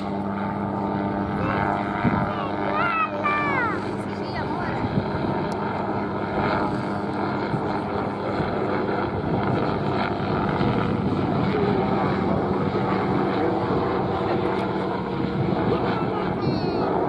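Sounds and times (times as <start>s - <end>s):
helicopter in flight: 0.0s - 17.0s.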